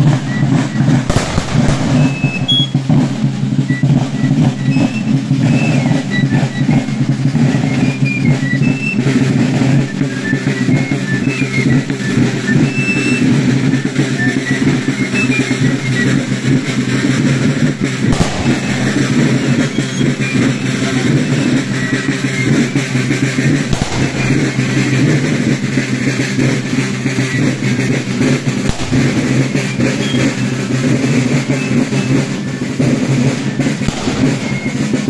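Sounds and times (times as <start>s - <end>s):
marching drums: 0.0s - 35.0s.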